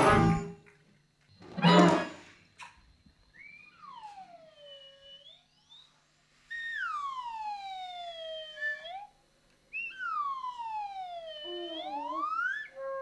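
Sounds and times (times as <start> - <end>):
high tone sliding downward: 3.3 - 13.0.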